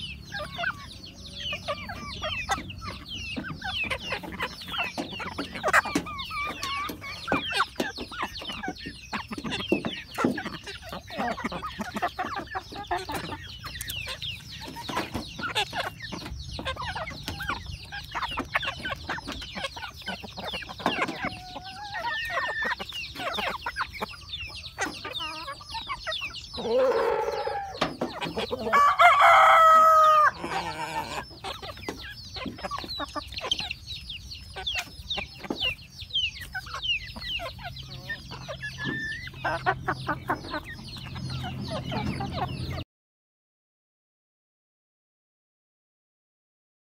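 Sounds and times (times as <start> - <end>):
chickens clucking softly: 0.0 - 42.8
rooster crowing: 26.6 - 27.8, 28.6 - 31.2.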